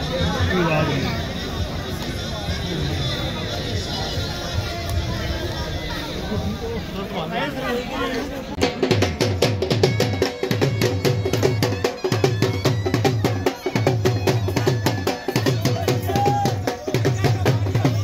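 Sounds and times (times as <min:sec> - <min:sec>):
crowd voices: 0:00.0 - 0:18.0
fast drum beat: 0:08.6 - 0:18.0.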